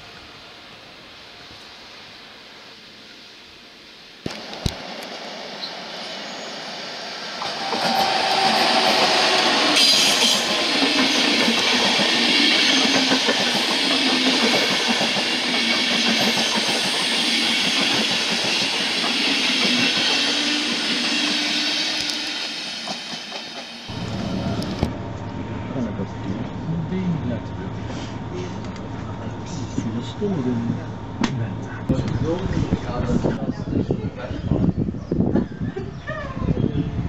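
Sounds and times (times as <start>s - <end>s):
train passing with wheels clattering: 4.3s - 25.6s.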